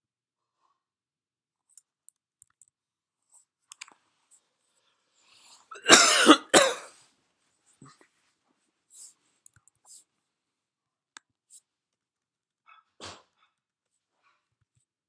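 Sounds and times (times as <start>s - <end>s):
person coughing: 5.7s - 6.9s.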